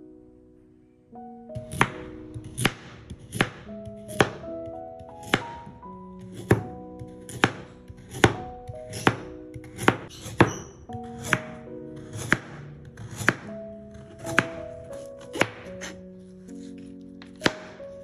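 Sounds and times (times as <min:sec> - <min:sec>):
knife slicing carrot: 0:01.6 - 0:04.4, 0:05.0 - 0:18.0.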